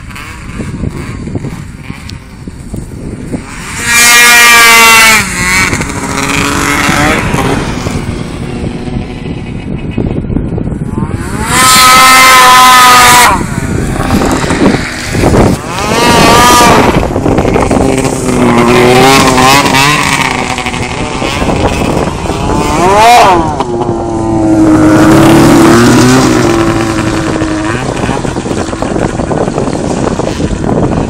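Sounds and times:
snowmobile engine revving: 0.0s - 10.1s, 10.8s - 31.0s.

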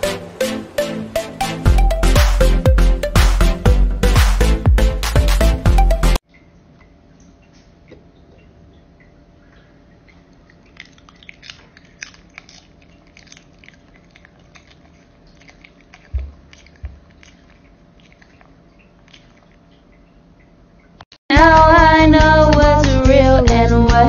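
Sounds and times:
dog chewing crunchy food: 10.4s - 19.7s.

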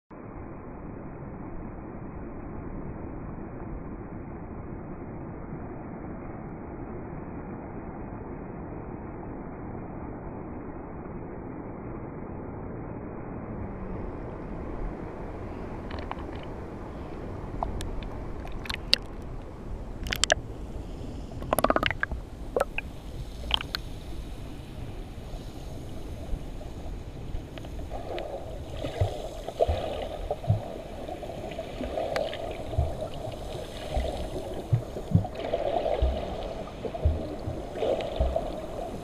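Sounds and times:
muffled underwater wash: 0.1s - 39.0s
sharp clicks: 20.0s - 20.4s, 21.4s - 22.8s, 23.4s - 23.8s
seawater sloshing and splashing: 27.7s - 39.0s
soft low knocks: 32.7s - 33.4s, 34.0s - 35.4s, 36.0s - 38.7s.

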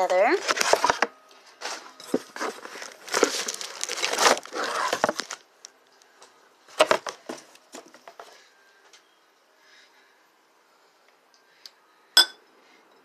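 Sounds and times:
packaging rustling: 0.3s - 5.5s, 6.7s - 8.4s.

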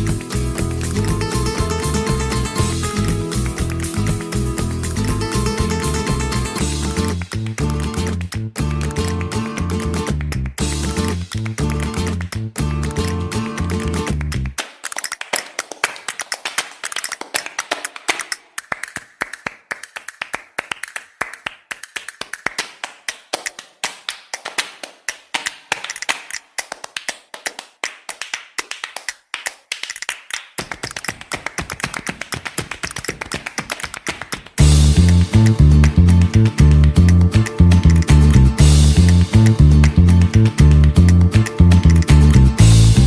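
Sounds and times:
low music part: 0.0s - 13.1s, 34.6s - 43.0s
rapid dry percussion taps: 14.9s - 36.0s.

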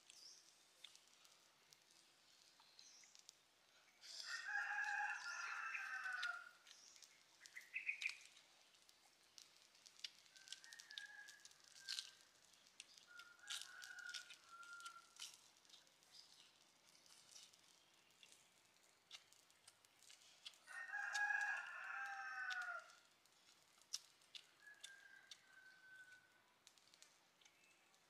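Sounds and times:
rooster crowing: 4.1s - 6.6s, 10.4s - 12.2s, 13.2s - 15.2s, 20.7s - 23.0s, 24.6s - 26.4s.

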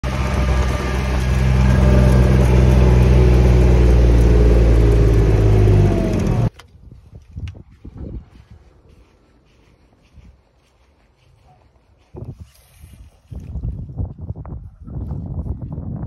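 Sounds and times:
utility vehicle engine running: 0.0s - 6.6s.

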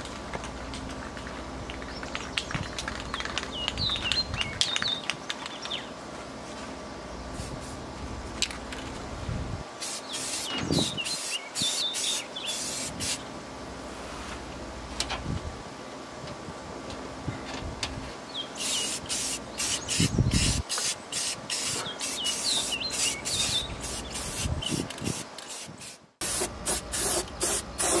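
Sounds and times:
spray-paint can hissing: 9.8s - 13.2s, 18.6s - 28.0s.

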